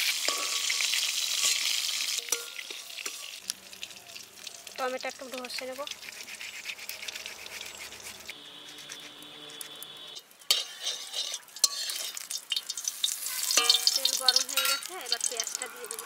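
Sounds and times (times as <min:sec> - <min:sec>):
metal spatula scraping a pan: 0:00.0 - 0:03.4, 0:05.3 - 0:16.0
hot oil sizzling: 0:00.0 - 0:16.0
tomato rasped on a grater: 0:05.2 - 0:09.8, 0:10.5 - 0:12.1.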